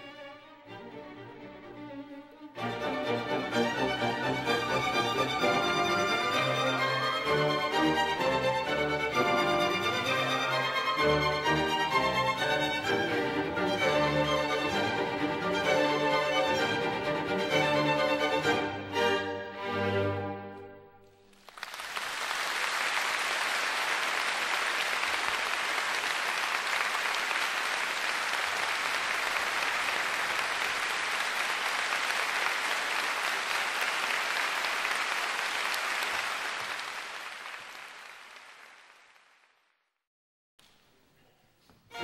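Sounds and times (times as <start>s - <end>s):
audience applauding: 21.2s - 39.7s.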